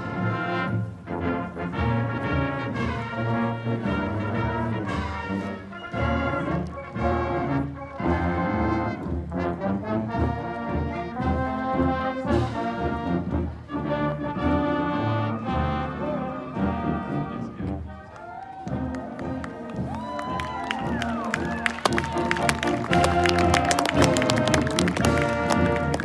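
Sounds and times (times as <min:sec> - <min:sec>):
marching band playing: 0:00.0 - 0:26.0.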